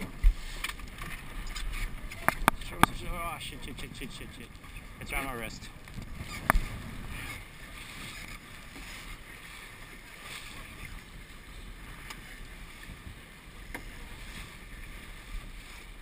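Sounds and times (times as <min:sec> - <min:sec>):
water rushing along boat hull: 0:00.0 - 0:16.0
wind on microphone: 0:00.0 - 0:16.0.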